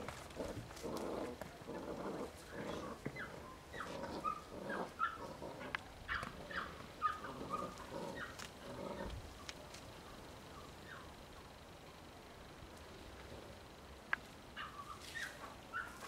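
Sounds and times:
puppy growling: 0.0 - 9.3.

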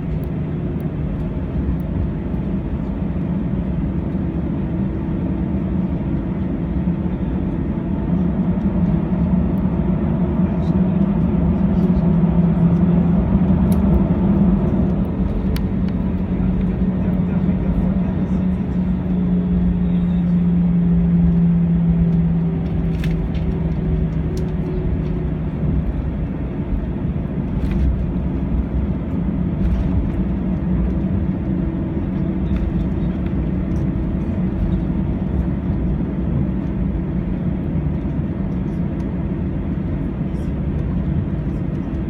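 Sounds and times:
airplane cabin low rumble: 0.0 - 42.0
faint clicks in cabin: 13.6 - 14.1, 14.8 - 17.3.

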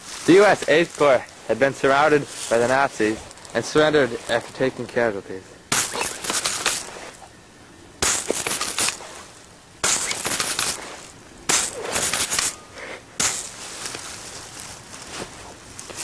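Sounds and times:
bursts of rapid crackling: 5.6 - 7.2, 8.0 - 12.6.

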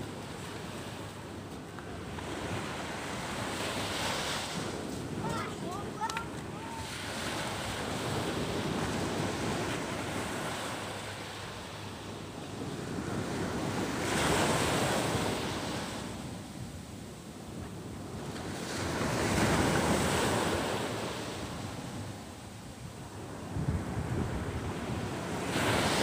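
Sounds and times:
surf washing onto beach: 0.0 - 16.5
wind buffeting microphone: 0.0 - 26.0.

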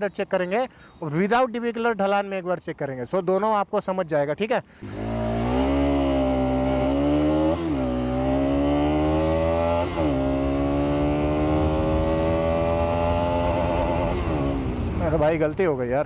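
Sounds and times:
motorcycle engine accelerating: 4.8 - 15.0.

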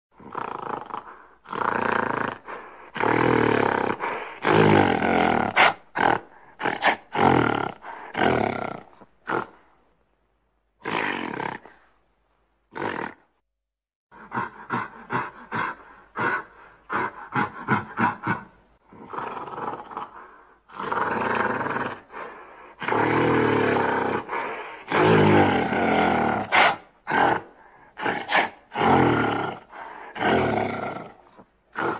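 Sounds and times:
gorilla roaring: 0.2 - 9.6, 12.7 - 13.3, 14.2 - 31.9
gorilla grunting: 14.1 - 22.2, 22.8 - 31.9.

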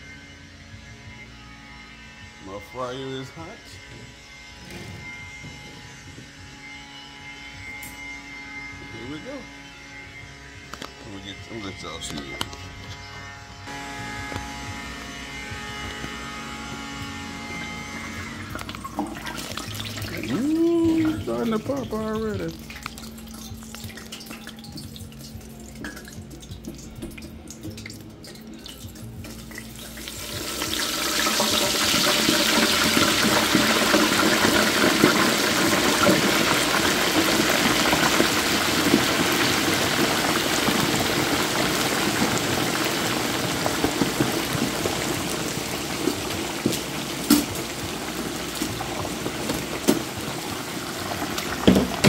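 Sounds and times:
hot oil sizzling and bubbling: 16.1 - 52.0
oil popping: 18.5 - 52.0.

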